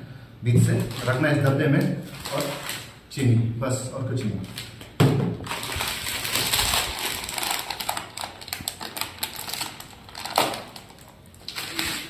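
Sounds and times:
plastic packet crinkling: 0.7 - 3.0, 4.2 - 12.0.

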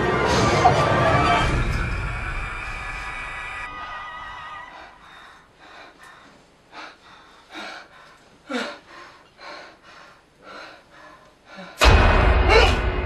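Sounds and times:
man breathing hard: 4.7 - 11.9.

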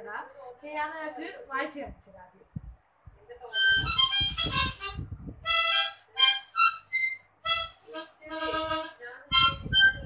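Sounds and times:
harmonica notes and chords: 3.5 - 10.0.

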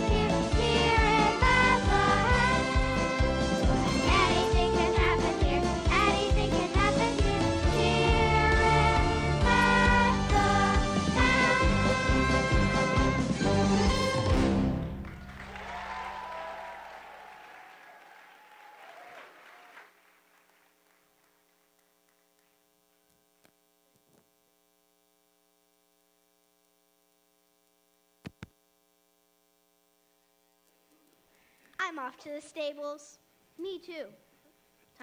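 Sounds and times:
music: 0.0 - 15.4
applause: 14.8 - 22.6
faint electrical hum: 15.0 - 35.0.

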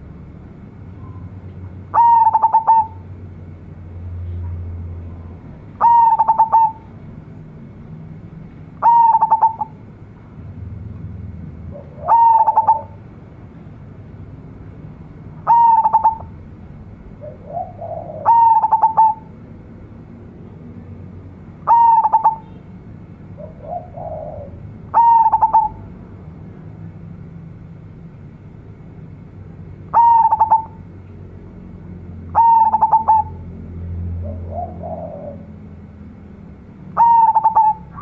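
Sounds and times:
dove cooing: 1.9 - 3.0, 5.8 - 6.9, 8.8 - 9.8, 11.7 - 13.0, 15.4 - 16.4, 17.2 - 19.3, 21.6 - 22.5, 23.4 - 25.8, 29.9 - 30.8, 32.3 - 33.5, 34.2 - 35.6, 37.0 - 38.0.

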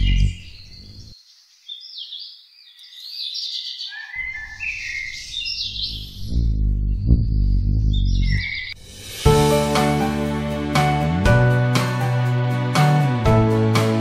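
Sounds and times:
songbirds chirping and singing: 0.0 - 8.8
background music: 8.8 - 14.0.

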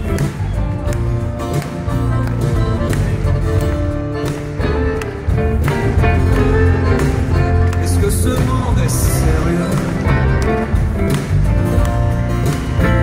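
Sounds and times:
acoustic guitar: 0.0 - 13.0
drums: 0.0 - 13.0
live band playing: 0.0 - 13.0.

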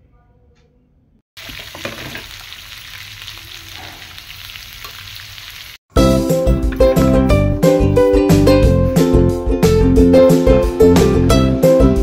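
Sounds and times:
onions sizzling in hot oil: 1.4 - 5.8.

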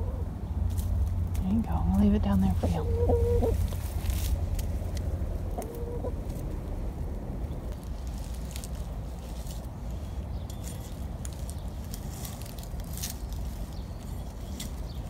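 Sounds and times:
steady low rumble: 0.0 - 15.0
hen call: 2.5 - 3.7.

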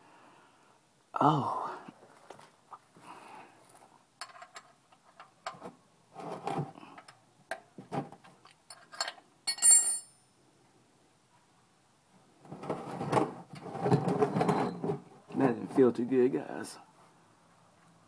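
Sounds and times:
loud metallic clink: 9.5 - 10.2.

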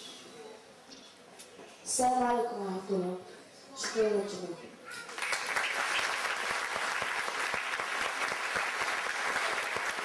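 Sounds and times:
audience applauding: 5.1 - 10.0.

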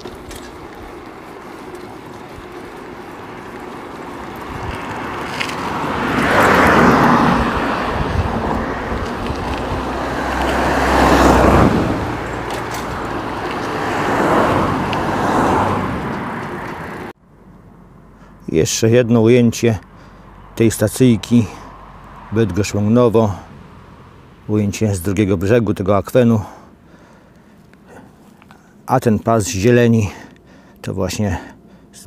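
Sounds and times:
cars passing on asphalt road: 0.0 - 32.0.

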